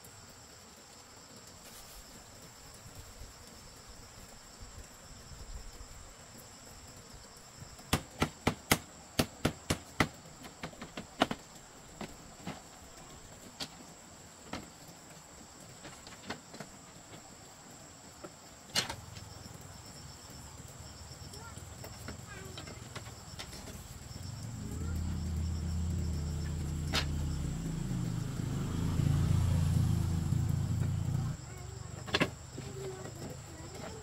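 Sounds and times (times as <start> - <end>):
insects droning: 0.0 - 34.0
sharp knocks and taps: 7.8 - 12.6.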